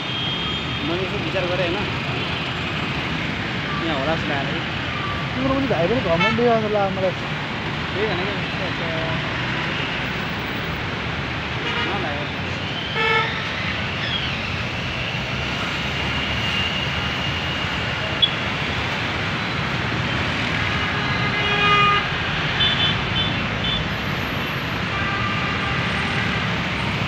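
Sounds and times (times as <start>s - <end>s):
road traffic: 0.0s - 27.0s
vehicle horns honking: 6.1s - 6.6s, 11.6s - 12.2s, 20.5s - 23.9s, 24.8s - 27.0s.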